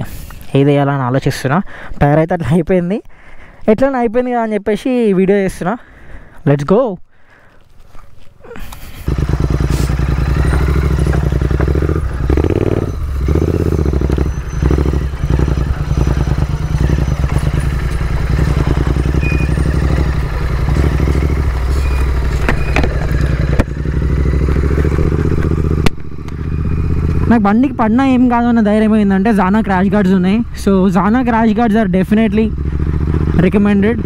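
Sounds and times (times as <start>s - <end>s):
motorcycle engine running: 8.8s - 34.0s.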